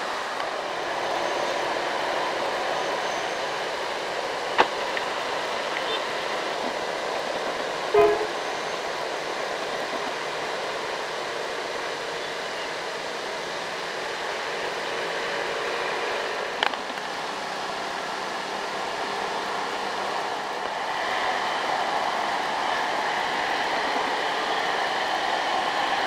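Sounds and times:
road traffic: 0.0 - 26.0
vehicle horn toot: 7.9 - 8.6.

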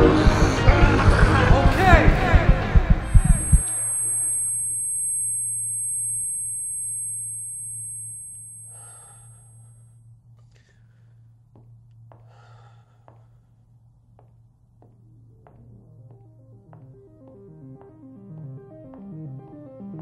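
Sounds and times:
low electronic drone: 0.0 - 9.4.

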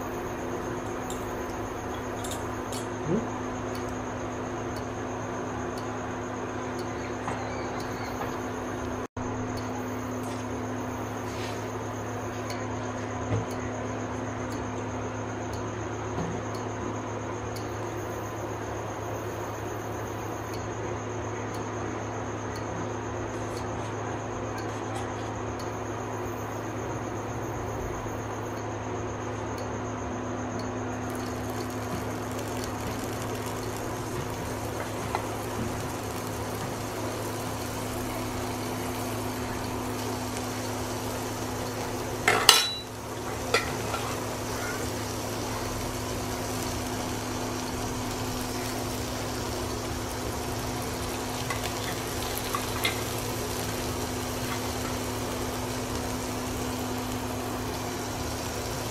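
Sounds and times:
oil and spices sizzling in pan: 0.0 - 12.6, 31.0 - 58.9
induction cooktop hum: 0.0 - 58.9
metal spoon clinking on pan: 42.2 - 44.1.

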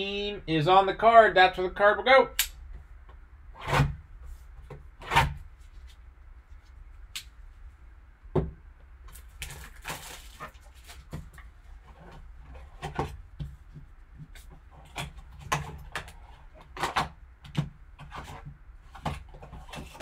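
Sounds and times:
plastic shrink wrap crinkling: 9.1 - 11.4.

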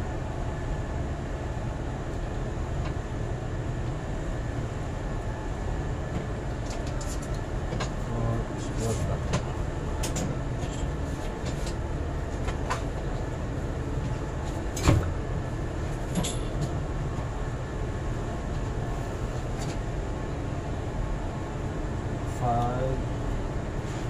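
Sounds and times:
low mechanical rumble: 0.0 - 24.0.

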